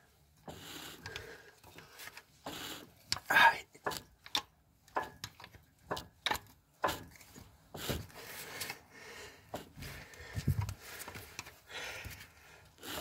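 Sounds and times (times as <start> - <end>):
wrench scraping and rubbing: 0.4 - 8.8.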